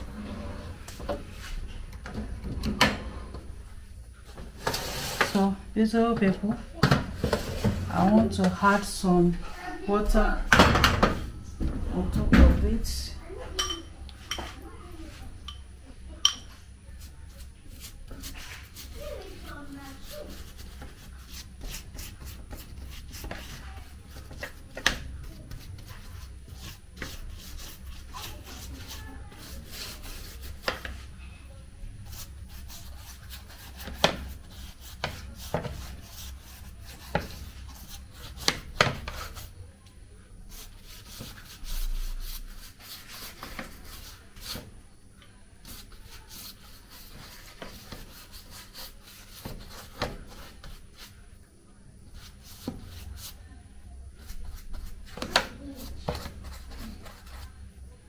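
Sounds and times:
pastry brush brushing dough: 0:14.2 - 0:15.4, 0:16.8 - 0:31.2, 0:31.8 - 0:39.6, 0:40.4 - 0:44.8, 0:45.5 - 0:51.3, 0:52.0 - 0:57.7.

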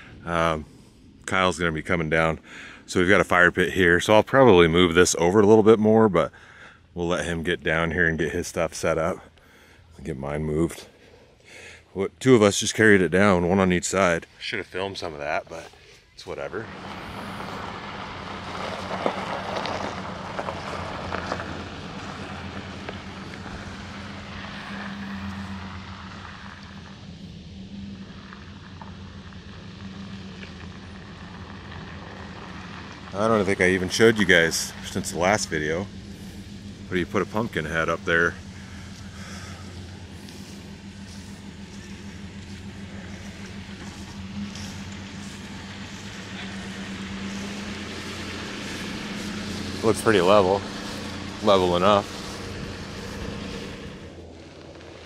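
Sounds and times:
truck engine running: 0:00.0 - 0:55.0
tyres hissing on gravel: 0:14.0 - 0:55.0.

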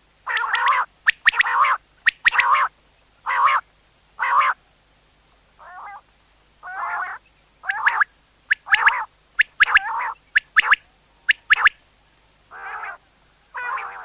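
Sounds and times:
quail calling: 0:00.2 - 0:03.6, 0:04.2 - 0:04.6, 0:05.6 - 0:06.0, 0:06.6 - 0:11.8, 0:12.5 - 0:14.0.

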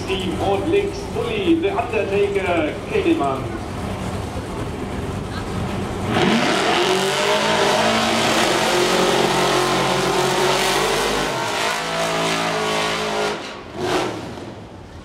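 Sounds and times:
hot-rod engine revving: 0:05.8 - 0:14.6.

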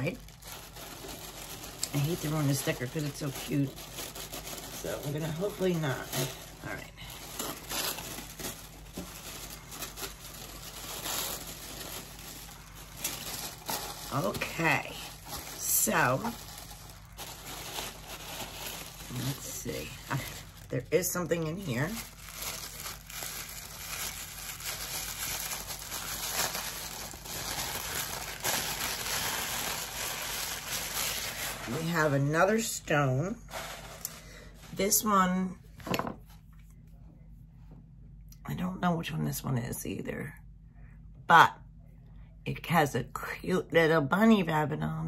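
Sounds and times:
tissue paper rustling and crinkling: 0:00.0 - 0:35.1.

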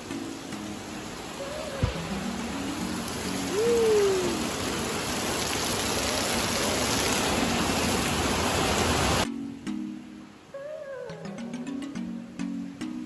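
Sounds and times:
heavy rain pouring: 0:00.0 - 0:09.3
water streaming off roof: 0:00.0 - 0:09.3
short rising falling call: 0:01.3 - 0:05.0.

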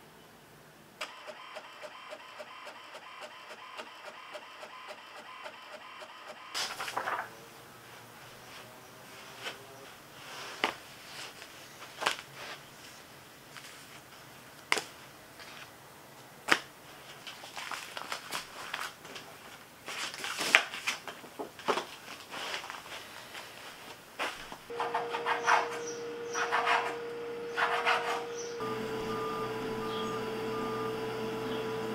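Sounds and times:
paper shuffling and rustling: 0:06.6 - 0:25.8.

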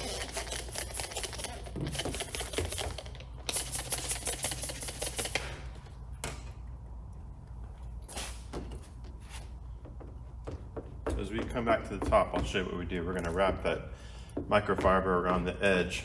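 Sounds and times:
trigger spray bottle spritzing: 0:00.0 - 0:05.7.

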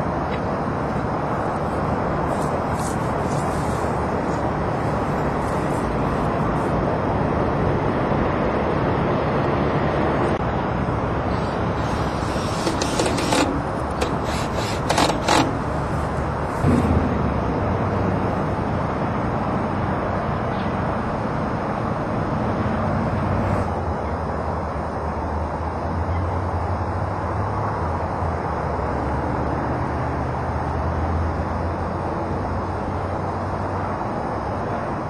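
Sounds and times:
outdoor background noise: 0:00.0 - 0:35.0
short clicks and knocks: 0:11.3 - 0:16.0.

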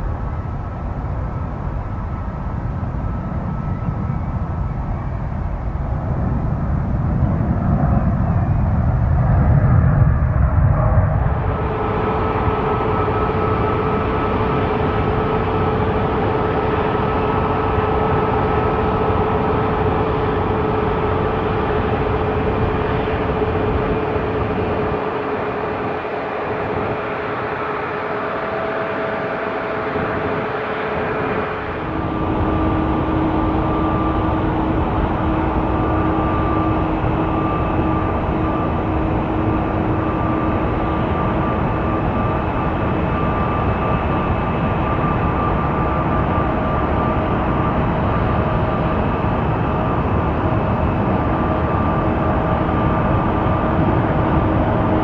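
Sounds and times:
jet engines roaring and whining: 0:00.0 - 0:55.0
lower-pitched whine: 0:00.0 - 0:55.0.

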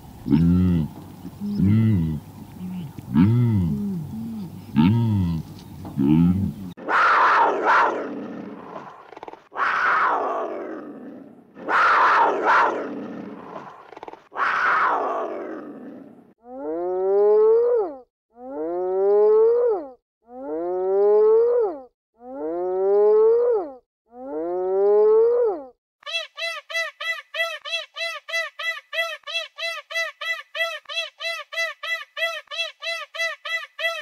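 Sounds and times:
rising pitched animal calls: 0:06.8 - 0:10.9, 0:11.6 - 0:17.6
harsh roaring animal cries: 0:06.8 - 0:16.3.

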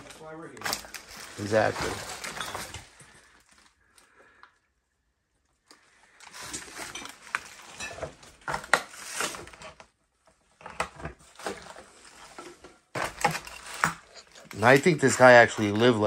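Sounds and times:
footsteps crunching through litter: 0:00.7 - 0:02.5.

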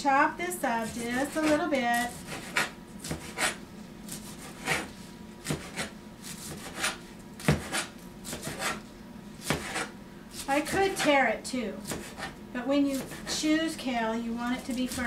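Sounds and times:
knife chopping on cutting board: 0:00.8 - 0:08.8, 0:09.4 - 0:11.2, 0:11.8 - 0:13.4, 0:14.6 - 0:15.0.

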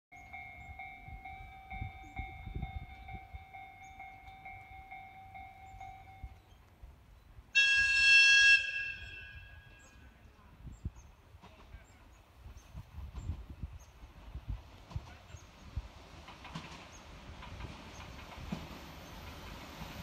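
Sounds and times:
train horn blast: 0:07.6 - 0:10.0.

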